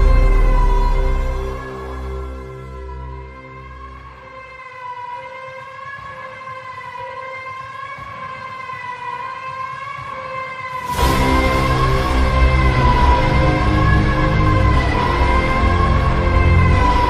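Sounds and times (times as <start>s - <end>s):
background music with bass: 0.0s - 4.6s, 10.9s - 17.0s
sustained siren-like tone: 0.0s - 17.0s.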